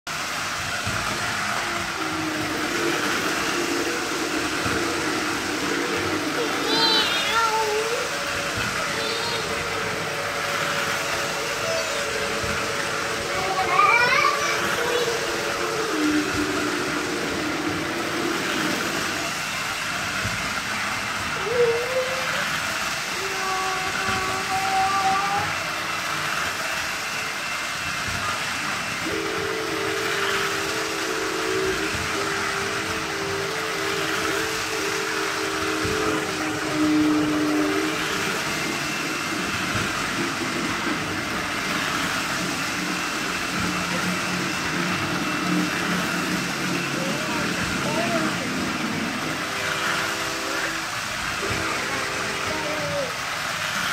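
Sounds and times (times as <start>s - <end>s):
toy trains whirring on track: 0.1s - 53.9s.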